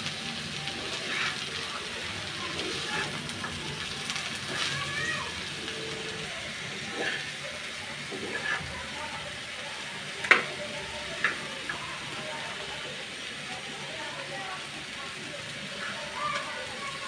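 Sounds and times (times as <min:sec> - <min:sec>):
faint frying hiss: 0:00.0 - 0:17.0
metal spatula scraping frying pan: 0:00.8 - 0:01.5, 0:02.6 - 0:03.5, 0:04.4 - 0:04.7, 0:06.7 - 0:07.4, 0:08.1 - 0:08.7.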